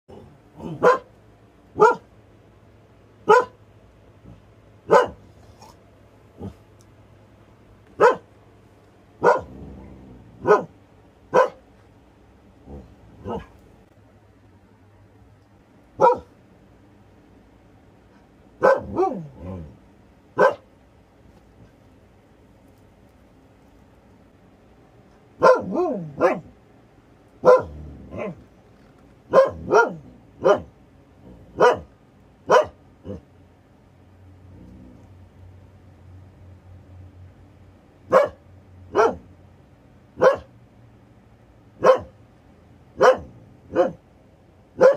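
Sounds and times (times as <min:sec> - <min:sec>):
dog barking: 0:00.6 - 0:01.1, 0:01.7 - 0:02.1, 0:03.2 - 0:03.6, 0:04.8 - 0:05.3, 0:08.0 - 0:08.3, 0:09.2 - 0:09.6, 0:10.4 - 0:11.6, 0:13.2 - 0:13.6, 0:16.0 - 0:16.4, 0:18.6 - 0:19.4, 0:20.4 - 0:20.7, 0:25.4 - 0:26.5, 0:27.4 - 0:28.4, 0:29.3 - 0:30.7, 0:31.6 - 0:31.9, 0:32.5 - 0:33.2, 0:38.1 - 0:39.3, 0:40.2 - 0:40.5, 0:41.8 - 0:42.2, 0:43.0 - 0:44.0.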